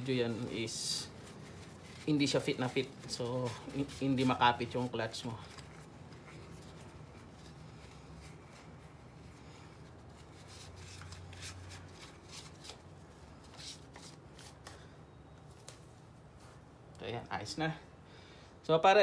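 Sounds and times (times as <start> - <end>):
tissue rustling and rubbing: 0.0 - 14.6
low steady hum: 0.0 - 19.0.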